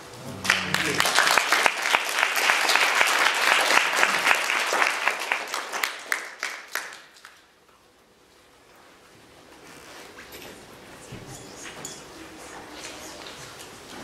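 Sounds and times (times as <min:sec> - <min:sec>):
audience applauding: 0:00.2 - 0:07.4.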